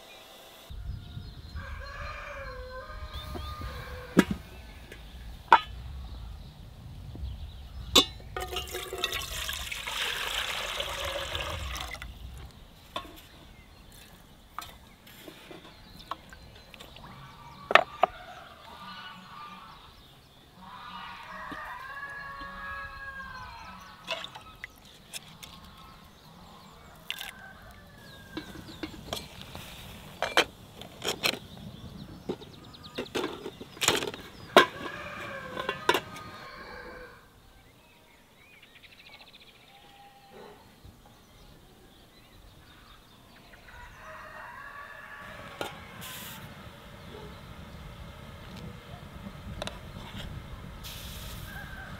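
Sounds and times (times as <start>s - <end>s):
chicken calling: 1.6s - 4.9s, 34.4s - 37.3s
water poured into metal pot: 8.4s - 12.2s.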